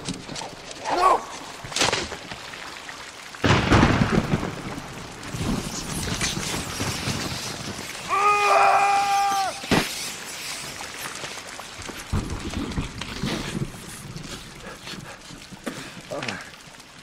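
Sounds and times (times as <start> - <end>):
thunderclap rumbling: 3.4 - 8.6, 11.8 - 15.2.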